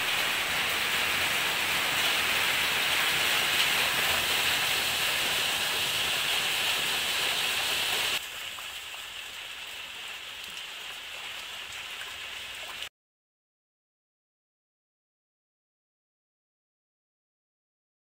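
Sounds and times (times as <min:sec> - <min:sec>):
rain falling into water basin: 0:00.0 - 0:12.9
rain falling on foliage: 0:00.0 - 0:12.9.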